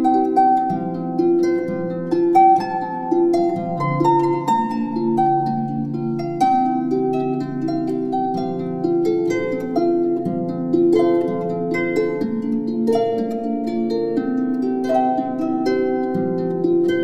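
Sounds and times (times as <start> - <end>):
plucked instrumental music: 0.0 - 17.0.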